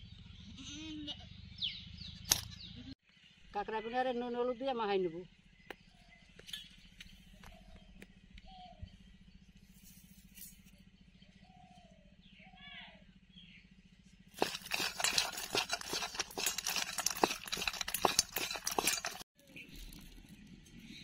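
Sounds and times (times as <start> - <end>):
crab shells clicking in steel bowl: 14.4 - 19.2.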